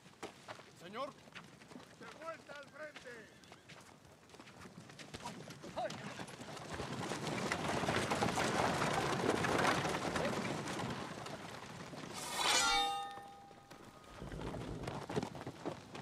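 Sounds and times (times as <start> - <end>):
clattering arms: 12.0 - 14.0
metallic blade strike ringing: 12.2 - 13.9.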